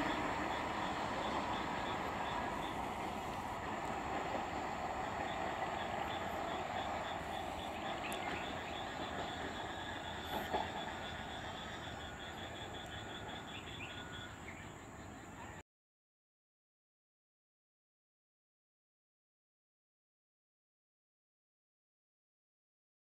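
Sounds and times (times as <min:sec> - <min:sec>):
train wheels rumbling: 0:00.0 - 0:14.9.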